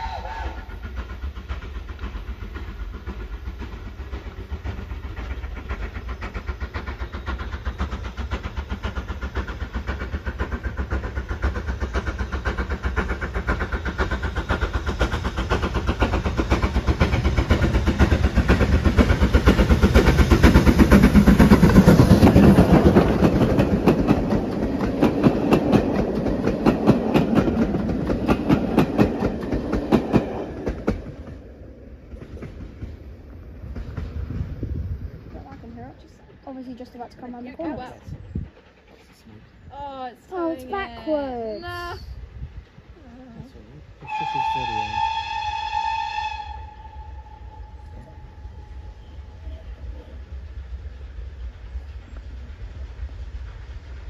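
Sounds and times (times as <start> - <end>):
steam train passing: 0.0 - 54.0
wheels clacking over rail joints: 0.8 - 39.2.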